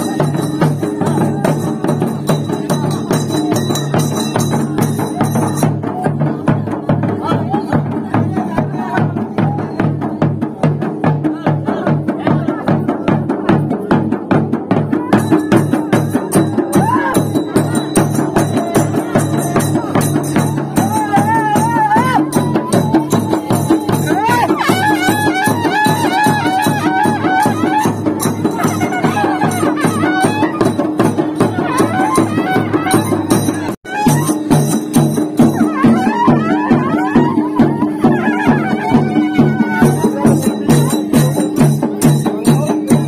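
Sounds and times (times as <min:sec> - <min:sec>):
barrel drums and frame drum: 0:00.0 - 0:43.0
hand cymbals: 0:00.0 - 0:43.0
high wavering melody: 0:21.8 - 0:41.8.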